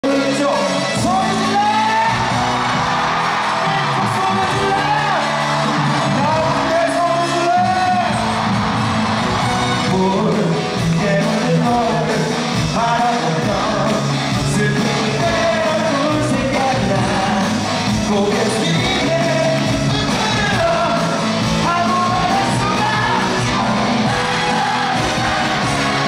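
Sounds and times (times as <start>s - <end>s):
man singing: 0.0s - 2.3s, 9.8s - 26.0s
live pop-rock band: 0.0s - 26.0s.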